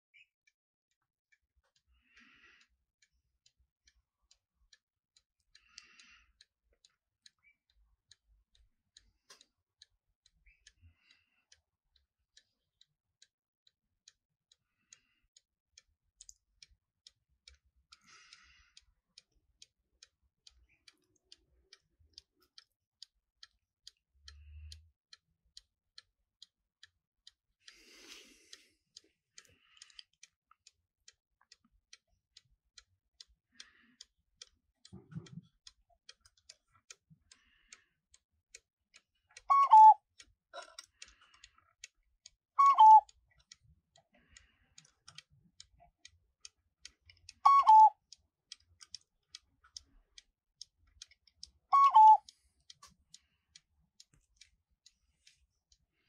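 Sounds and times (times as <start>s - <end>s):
clock ticking: 0.0s - 56.0s
two-note cuckoo calls: 39.4s - 40.0s, 42.6s - 43.1s, 47.4s - 48.0s, 51.7s - 52.3s.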